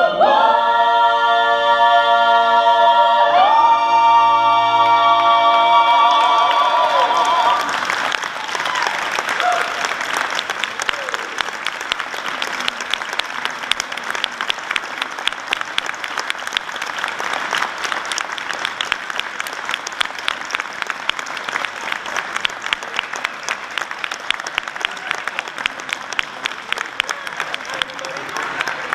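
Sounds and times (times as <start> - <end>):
audience applauding: 6.0 - 28.9.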